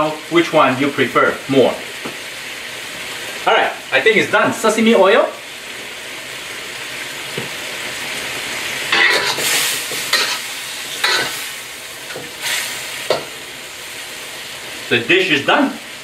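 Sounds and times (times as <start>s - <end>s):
stir-fry sizzling in a wok: 0.0s - 16.0s
spatula scraping a wok: 8.9s - 13.4s.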